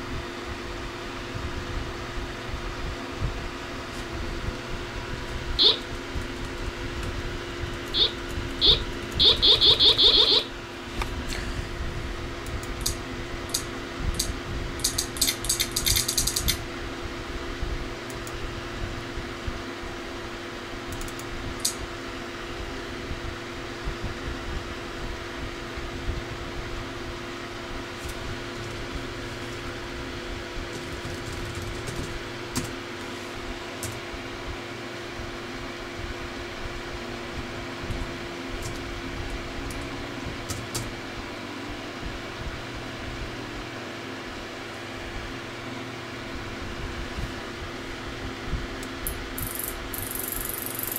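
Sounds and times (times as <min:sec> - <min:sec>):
steady low hum: 0:00.0 - 0:43.7, 0:44.3 - 0:50.9
computer volume beeps: 0:05.6 - 0:05.8, 0:08.0 - 0:10.5, 0:49.4 - 0:50.9.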